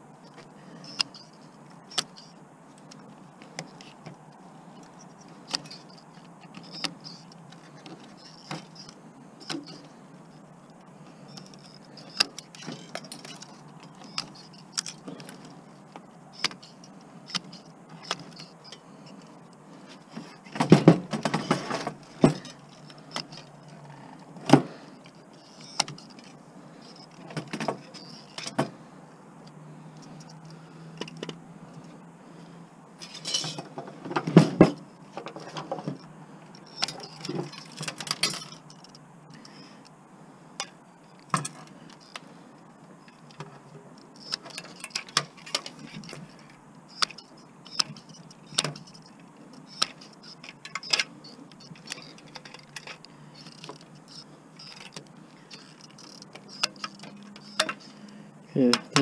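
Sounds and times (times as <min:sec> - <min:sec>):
pliers and metal parts clinking: 0:11.3 - 0:19.4, 0:33.0 - 0:39.6, 0:40.6 - 0:42.2, 0:43.0 - 0:58.0.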